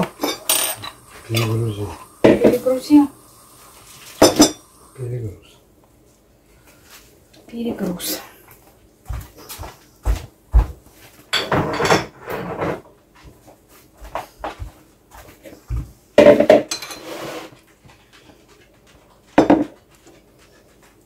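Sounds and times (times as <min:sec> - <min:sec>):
pots and utensils clanking: 0:00.0 - 0:02.9, 0:03.8 - 0:05.0, 0:11.3 - 0:12.8, 0:16.2 - 0:17.6
spoon scraping a steel pot: 0:16.7 - 0:17.6.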